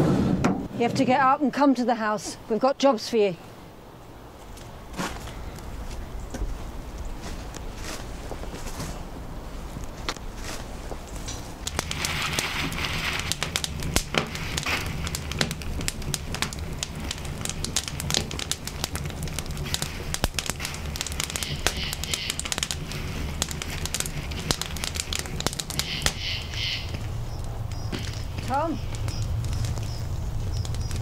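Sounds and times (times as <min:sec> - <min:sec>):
low rumble of fire: 0:00.0 - 0:31.0
fire crackling and popping: 0:03.4 - 0:31.0.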